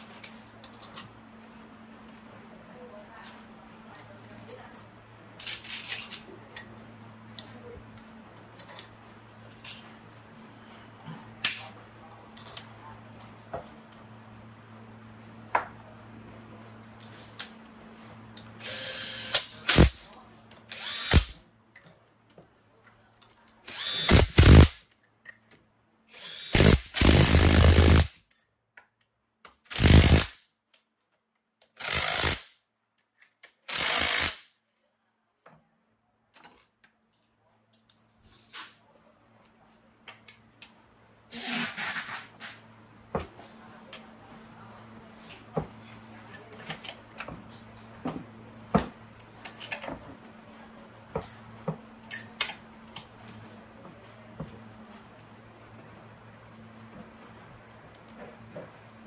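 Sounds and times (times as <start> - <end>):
handheld power tool bursts: 18.7 - 20.1, 20.7 - 21.4, 23.7 - 24.8, 26.2 - 28.2, 29.7 - 30.4, 31.8 - 32.5, 33.7 - 34.5.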